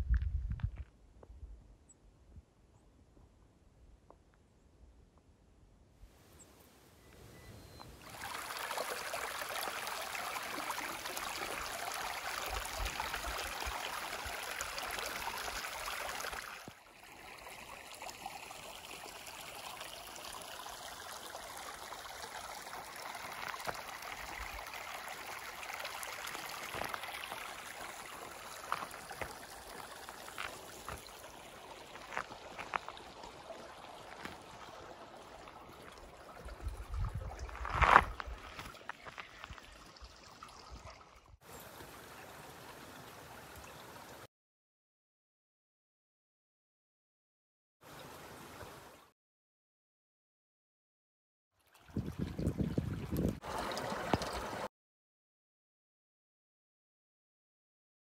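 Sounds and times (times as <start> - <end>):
stream water running: 7.0 - 44.3, 47.8 - 49.1, 51.6 - 54.7.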